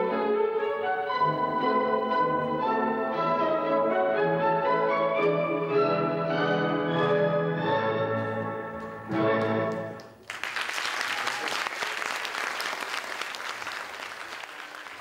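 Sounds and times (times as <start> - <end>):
classical ballet music: 0.0 - 10.2
audience applause: 9.3 - 15.0.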